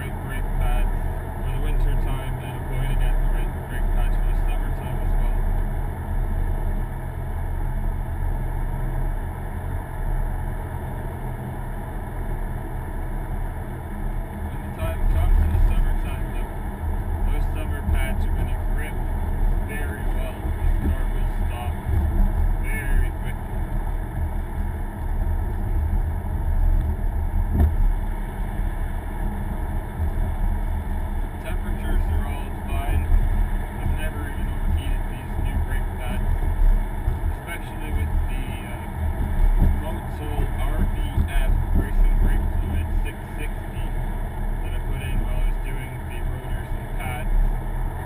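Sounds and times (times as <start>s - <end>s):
car engine drone: 0.0s - 48.0s
road rumble: 0.0s - 48.0s.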